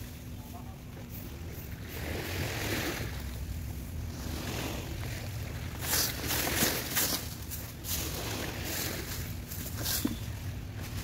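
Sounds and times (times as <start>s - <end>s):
small waves: 0.0s - 11.0s
steady wind: 0.0s - 11.0s
broom sweeping dry leaves: 4.1s - 11.0s.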